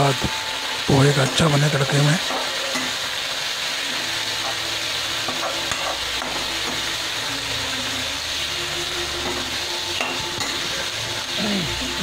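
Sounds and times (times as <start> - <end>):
vegetables sizzling in hot oil: 0.0 - 12.0
spatula scraping a wok: 2.2 - 11.4.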